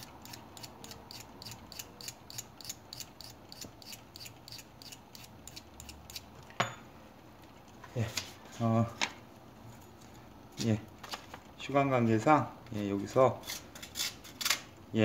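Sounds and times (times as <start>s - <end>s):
knife scraping on sharpening stick: 0.0s - 6.2s.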